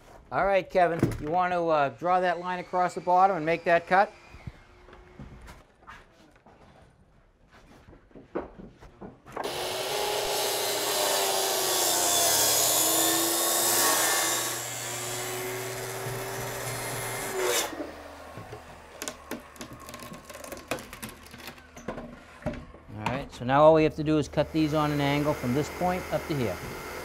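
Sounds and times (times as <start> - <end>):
circular saw cutting plywood: 2.0 - 5.2, 9.4 - 20.6, 24.0 - 27.0.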